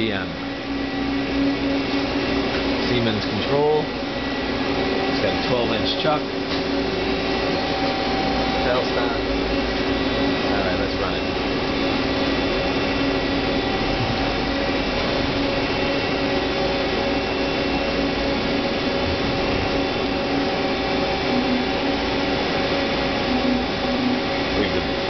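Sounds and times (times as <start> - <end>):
machine hum: 0.0 - 25.0
whining tones: 0.0 - 25.0.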